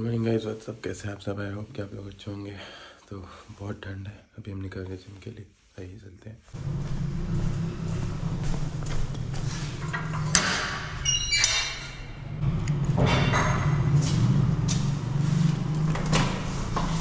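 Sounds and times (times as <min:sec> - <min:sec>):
clicks and knocks: 0:09.1 - 0:13.9.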